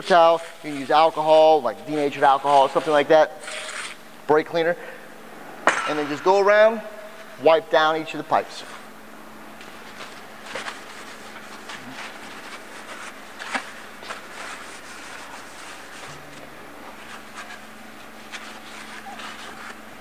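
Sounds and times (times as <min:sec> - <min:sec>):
paper towel scrubbing metal pipes: 0:00.0 - 0:04.0, 0:09.6 - 0:20.0
steady low hum: 0:00.0 - 0:20.0.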